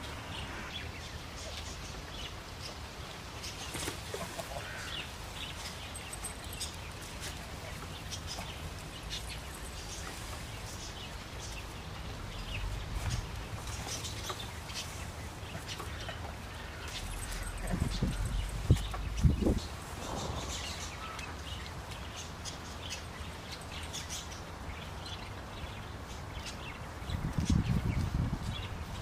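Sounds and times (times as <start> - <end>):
birds chirping: 0.0 - 29.0
steady low rumble: 16.7 - 21.7.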